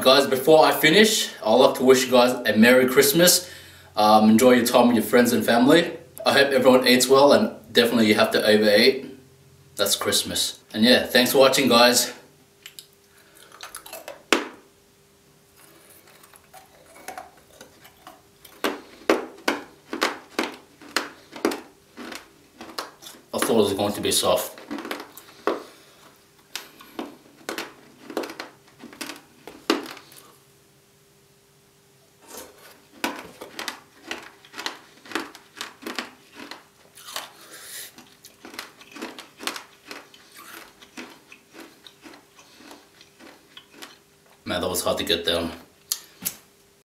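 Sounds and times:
crunching gingerbread: 12.6 - 14.6, 15.5 - 30.4, 32.2 - 45.2.

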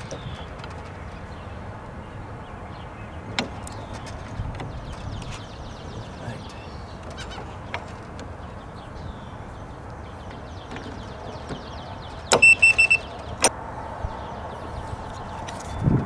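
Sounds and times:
short high-pitched beeps: 12.3 - 13.1.

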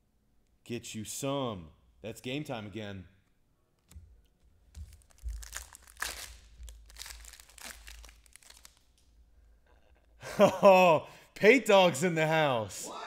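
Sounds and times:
plastic wrapper crinkling: 4.6 - 9.2.

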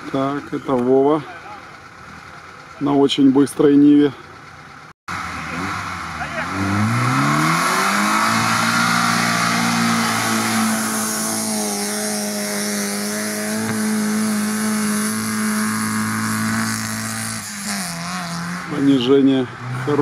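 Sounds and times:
car engine at high revs: 4.4 - 20.0.

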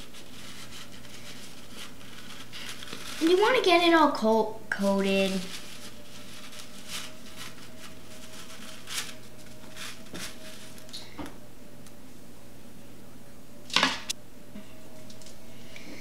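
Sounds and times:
cornflakes rustling and crunching: 0.0 - 4.0, 4.8 - 11.0
faint steady hum: 0.0 - 16.0.

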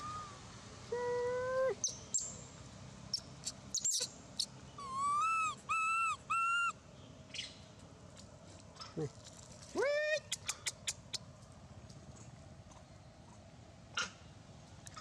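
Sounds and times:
baby monkey crying: 4.8 - 6.7.

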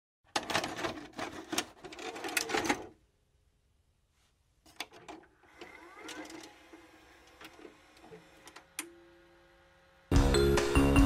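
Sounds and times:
tape mechanism clicking: 4.7 - 9.0.

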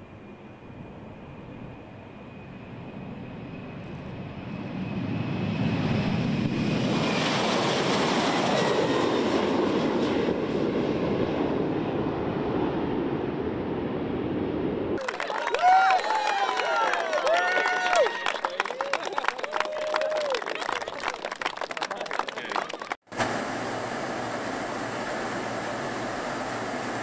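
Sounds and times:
jet engines at takeoff: 0.0 - 15.0, 23.1 - 27.0.

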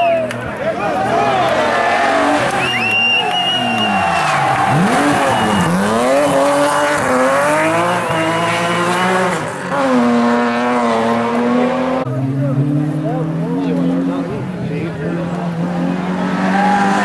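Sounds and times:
car engine revving hard: 1.2 - 17.0
tyre squeal: 2.6 - 6.4.

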